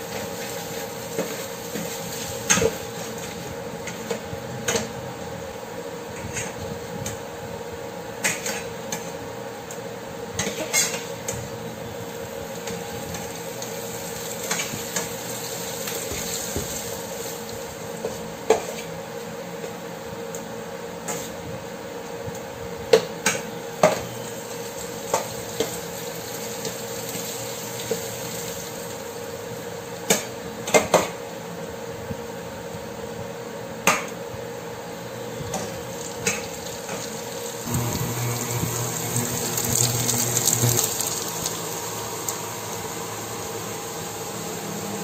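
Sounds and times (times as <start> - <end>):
eggs frying in a pan: 0.0 - 4.2, 10.4 - 18.8, 23.8 - 30.8, 35.3 - 45.0.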